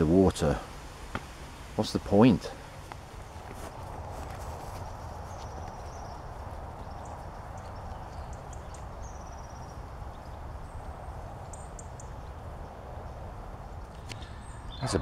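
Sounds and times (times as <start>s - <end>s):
steady background hiss: 0.0s - 15.0s
small birds trilling: 1.8s - 15.0s
footsteps on woodland path: 2.5s - 12.6s.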